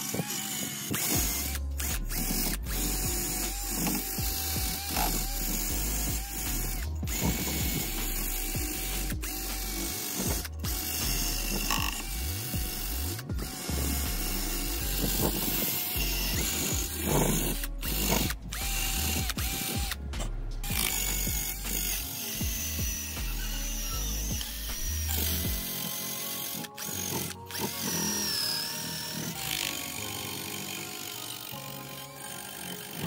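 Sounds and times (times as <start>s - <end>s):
wire brush scratching metal: 0.0s - 22.2s
rotary tool motor whine: 0.0s - 33.0s.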